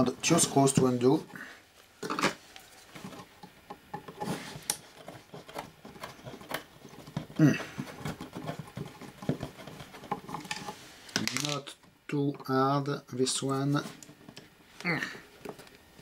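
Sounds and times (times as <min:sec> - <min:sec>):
vocal murmur: 0:07.3 - 0:08.0.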